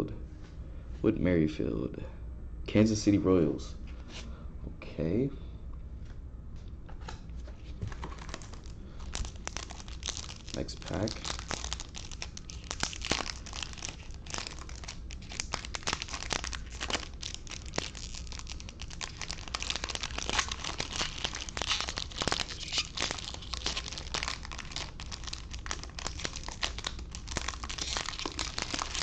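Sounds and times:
foil wrapper tearing and crinkling: 0:07.9 - 0:29.0.

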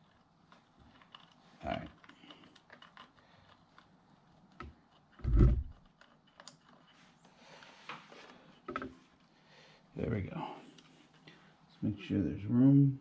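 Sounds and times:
clicks and rustles of wiring: 0:00.0 - 0:09.3.

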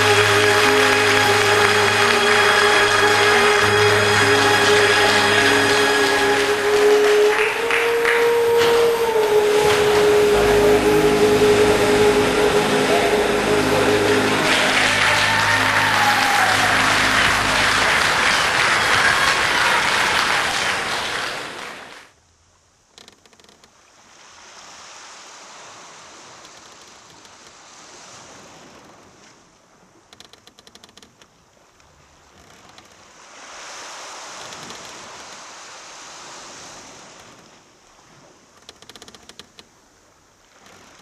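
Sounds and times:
audience applauding: 0:00.0 - 0:22.1.

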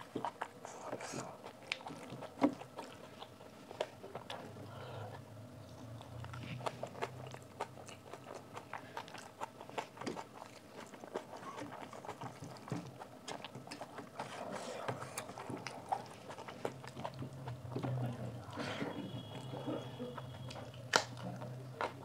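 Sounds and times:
close-up chewing: 0:00.0 - 0:22.0
wet mouth clicks and smacks: 0:20.5 - 0:22.0.

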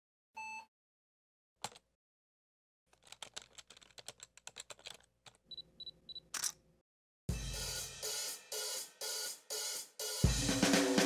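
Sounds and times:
keyboard typing: 0:01.6 - 0:01.8, 0:03.0 - 0:05.6.

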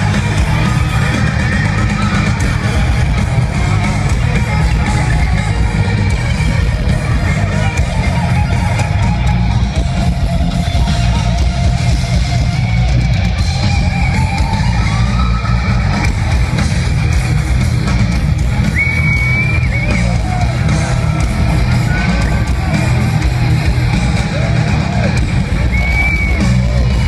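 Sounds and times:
heavy metal band playing live: 0:00.0 - 0:27.0.

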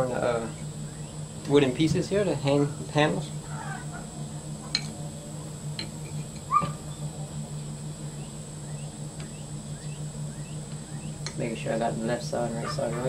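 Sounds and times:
steady low hum: 0:00.0 - 0:13.0
faint bird chirps: 0:08.1 - 0:11.3.

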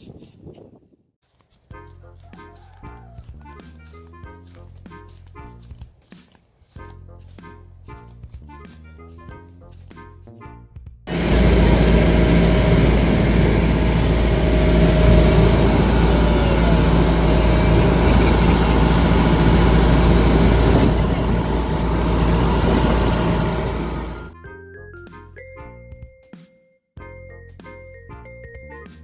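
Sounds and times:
boat engine droning: 0:11.1 - 0:24.3
water rushing along hull: 0:11.1 - 0:24.3.

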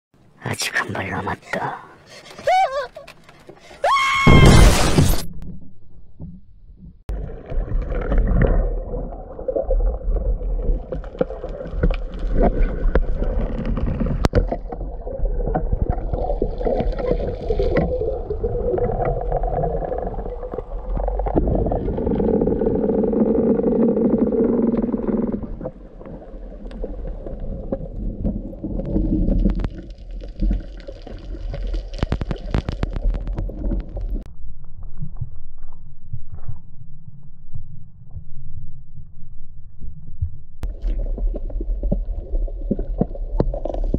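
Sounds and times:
underwater water rumbling: 0:05.3 - 0:43.9
clicks and pops: 0:28.3 - 0:36.6.

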